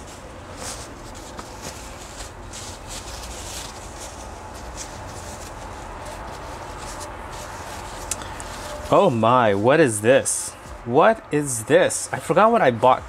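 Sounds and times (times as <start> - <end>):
paper and plastic rustling: 0.0 - 10.2
steady low rumble: 0.0 - 11.3.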